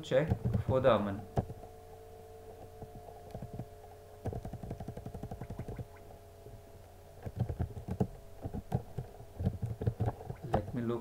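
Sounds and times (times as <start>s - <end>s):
steady low hum: 0.0s - 11.0s
computer keyboard keys clicking: 4.3s - 5.8s.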